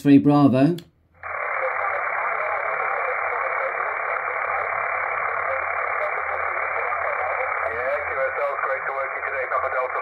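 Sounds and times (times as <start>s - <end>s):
radio static hiss: 1.2s - 10.0s.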